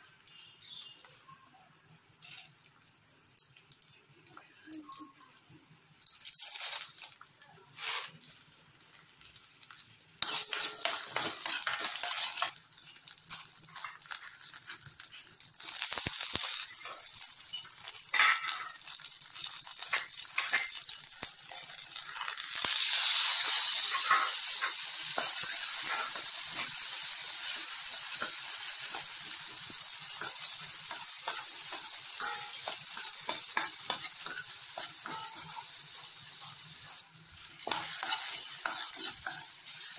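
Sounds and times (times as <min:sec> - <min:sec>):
food sizzling in oil: 0:00.0 - 0:39.9
spoon stirring and scraping: 0:10.2 - 0:15.3, 0:27.5 - 0:39.9.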